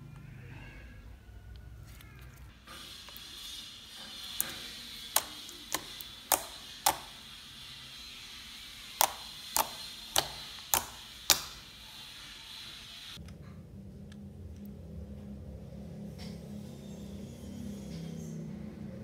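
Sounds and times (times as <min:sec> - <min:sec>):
fingertips poking slime clicks: 0:04.4 - 0:07.2, 0:09.0 - 0:11.6.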